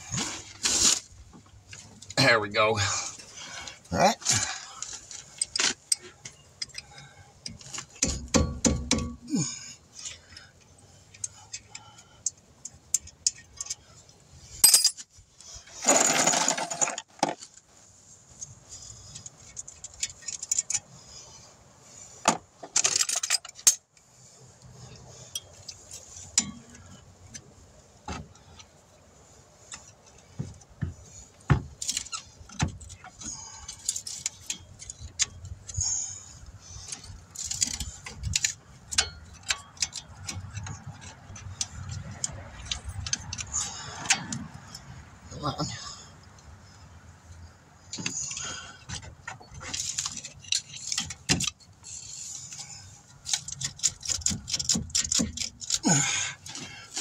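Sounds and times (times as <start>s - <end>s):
metal tools clinking on brake: 4.2s - 15.1s, 18.4s - 21.0s, 22.7s - 23.9s, 24.8s - 27.5s, 31.8s - 45.0s, 47.9s - 57.0s.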